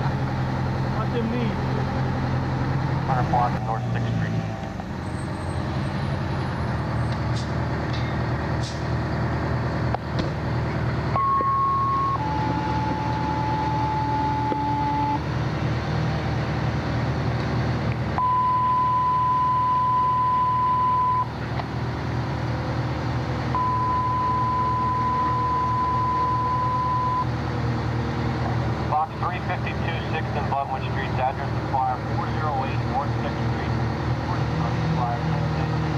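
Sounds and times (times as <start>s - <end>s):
diesel engine rumbling: 0.0s - 35.9s
long steady beep tones: 11.1s - 15.2s, 18.2s - 21.3s, 23.5s - 27.3s.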